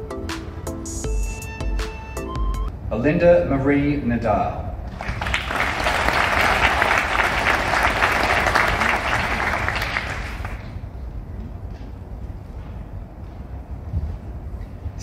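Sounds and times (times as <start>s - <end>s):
audience applauding: 4.9s - 10.8s.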